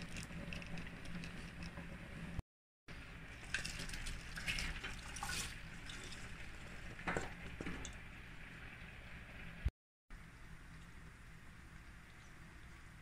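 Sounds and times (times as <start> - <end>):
low steady hum: 0.0 - 13.0
vegetables rustling and splashing: 3.3 - 6.4.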